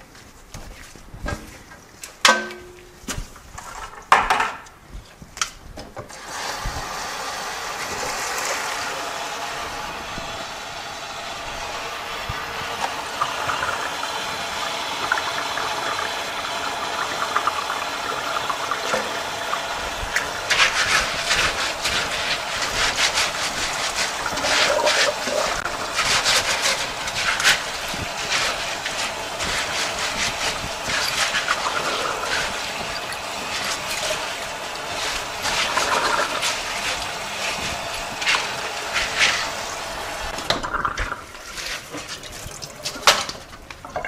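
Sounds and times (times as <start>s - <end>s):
hose water running into sink: 6.1s - 44.0s
splashes and rustles of bag: 41.2s - 43.5s.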